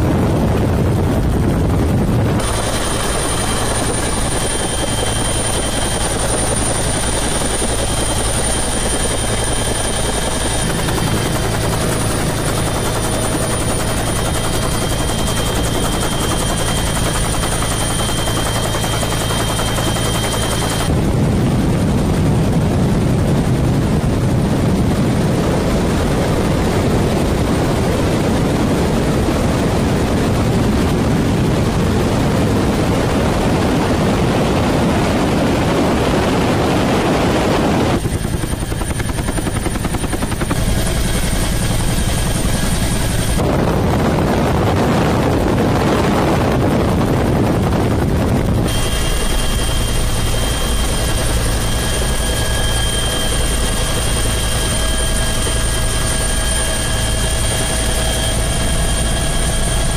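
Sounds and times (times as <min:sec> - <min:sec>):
high whine: 0:00.0 - 0:21.5, 0:35.6 - 0:59.9
helicopter engine and rotor: 0:00.0 - 0:59.9.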